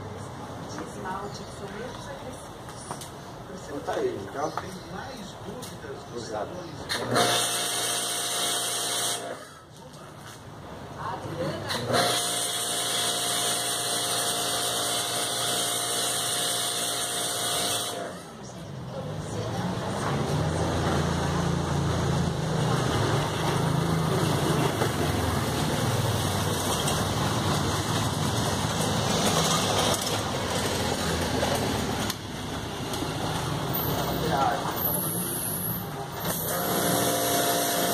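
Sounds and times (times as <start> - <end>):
pressure washer motor hum: 36.3 - 37.9.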